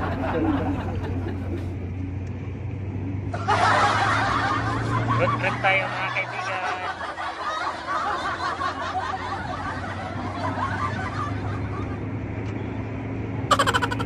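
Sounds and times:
passengers chuckling: 0.0s - 1.9s, 3.3s - 12.2s, 13.5s - 14.0s
car cabin engine and tyre hum: 0.0s - 14.0s.

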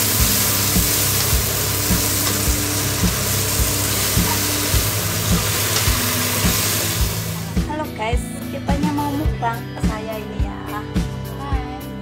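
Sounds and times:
greens sizzling in a hot pan: 0.0s - 7.7s
background music with steady beat: 0.0s - 12.0s.

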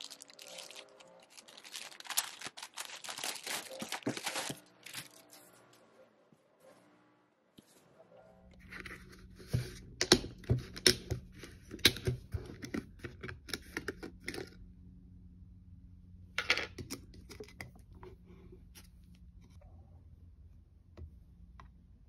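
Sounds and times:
crinkly rustle: 0.0s - 5.6s
low steady hum: 7.9s - 22.0s.

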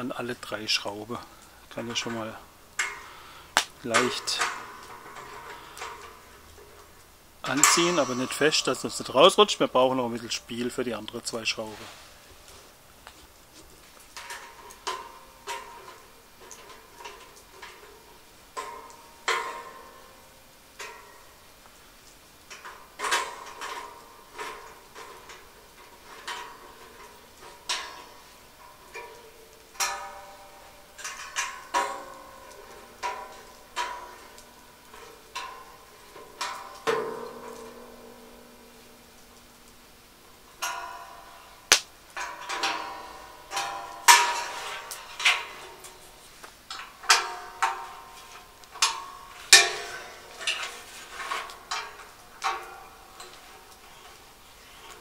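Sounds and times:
metal parts clanking: 7.4s - 11.8s, 40.6s - 55.0s.

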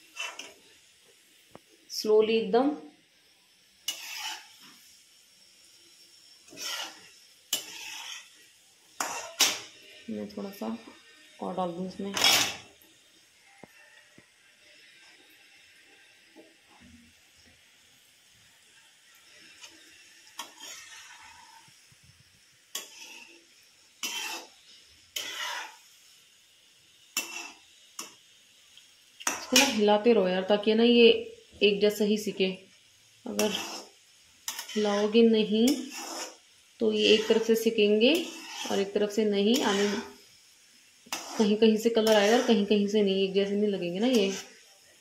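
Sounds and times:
metal spoon scraping pan: 0.0s - 0.6s, 3.8s - 4.8s, 6.4s - 8.4s, 9.0s - 10.1s, 12.0s - 12.7s, 19.2s - 21.8s, 22.7s - 25.9s, 27.2s - 28.2s, 29.2s - 29.8s, 33.3s - 40.2s, 41.1s - 44.6s
dough sizzling in hot oil: 0.0s - 45.0s.

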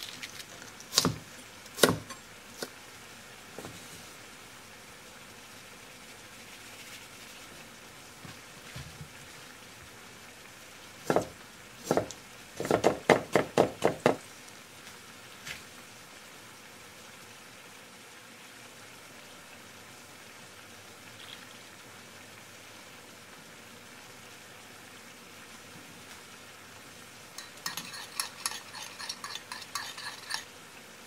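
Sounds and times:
faint steady hiss: 0.0s - 31.0s
knife chopping on wooden board: 0.9s - 1.2s, 1.8s - 2.1s, 11.1s - 14.2s.

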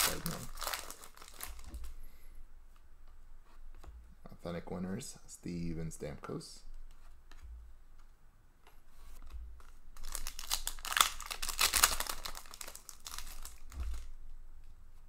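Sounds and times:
foil wrapper tearing and crinkling: 0.0s - 1.7s, 10.0s - 14.1s
cards rustling: 0.0s - 2.0s, 8.0s - 14.1s.

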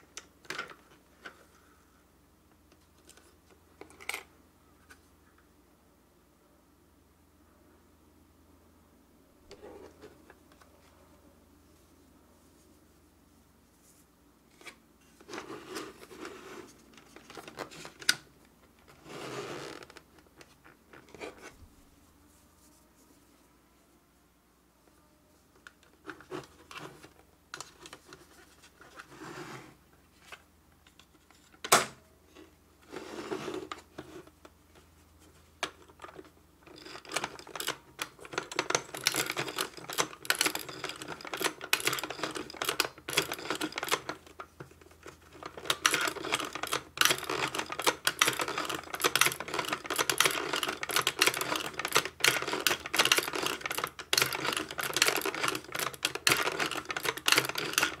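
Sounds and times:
toy sewing machine clattering: 35.9s - 44.4s, 45.0s - 58.0s.

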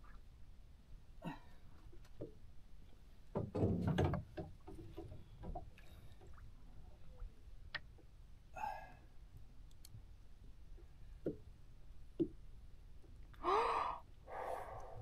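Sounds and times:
man exhaling breathily: 13.4s - 15.0s.

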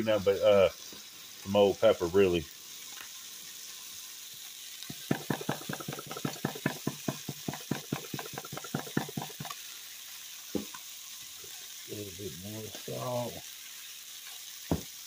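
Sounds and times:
chicken sizzling in a frying pan: 0.0s - 15.0s.

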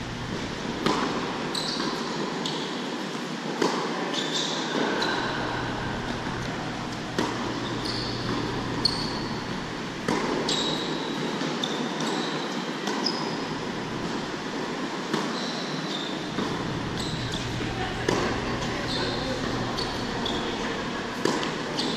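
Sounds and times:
tennis shoes squeaking: 0.1s - 2.7s, 4.1s - 14.3s, 15.3s - 21.9s
tennis balls bouncing on court: 0.3s - 2.0s, 5.2s - 10.8s, 16.2s - 21.9s.

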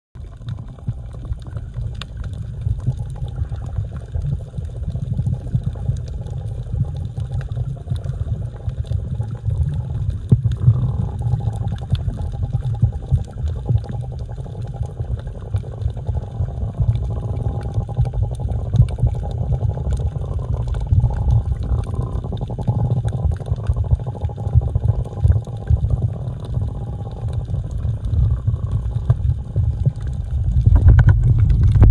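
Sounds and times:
underwater rumbling and gurgling: 0.2s - 31.9s.

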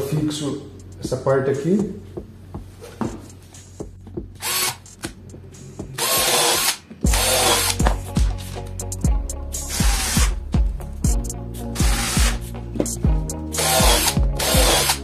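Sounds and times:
cordless drill whining: 4.4s - 4.8s, 6.0s - 7.9s, 9.7s - 10.4s, 11.8s - 12.4s, 13.5s - 15.0s.

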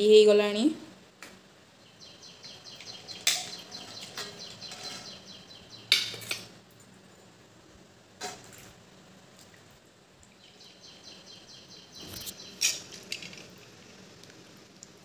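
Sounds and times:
bird chirping: 1.8s - 6.4s, 10.3s - 13.1s.

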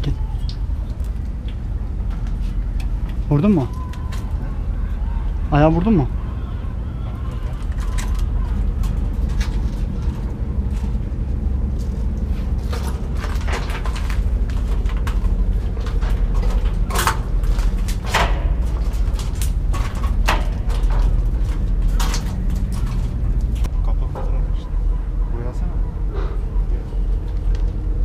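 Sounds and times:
steady low rumble: 0.0s - 28.0s
footsteps on steel scaffold planks: 11.8s - 23.6s.

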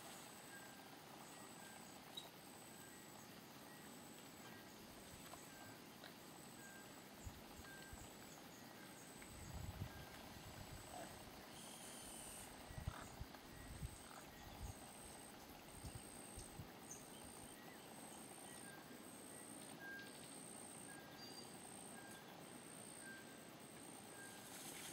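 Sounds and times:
faint high-pitched chirp: 6.5s - 15.2s, 15.8s - 23.5s.

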